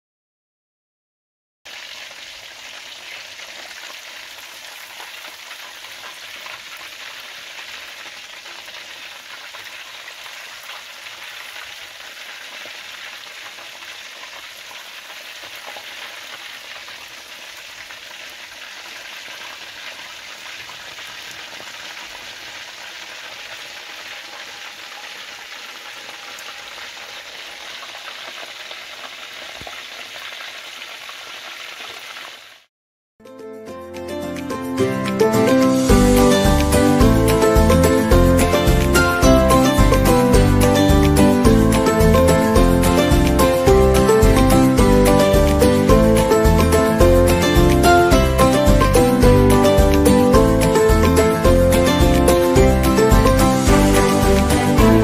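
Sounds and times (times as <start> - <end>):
chicken frying in hot oil: 1.7 - 32.7.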